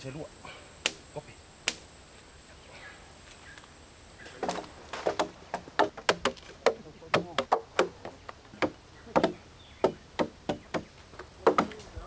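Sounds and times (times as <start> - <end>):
high insect drone: 0.0 - 12.0
hand tools chopping wood: 4.4 - 12.0.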